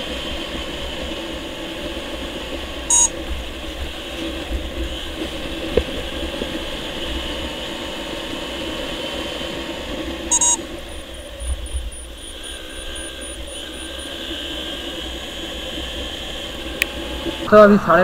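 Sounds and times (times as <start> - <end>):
motorcycle engine running: 0.0 - 17.8
wind and road noise: 0.0 - 18.0
short loud beep: 2.9 - 3.1, 10.3 - 10.6
faint high-pitched beeping: 2.9 - 3.2, 10.3 - 14.3.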